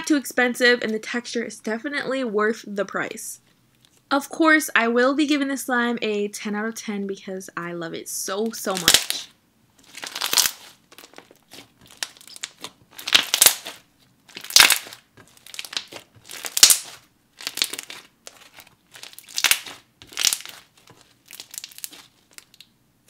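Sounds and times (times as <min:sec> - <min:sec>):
slime squelching: 0:08.7 - 0:22.8.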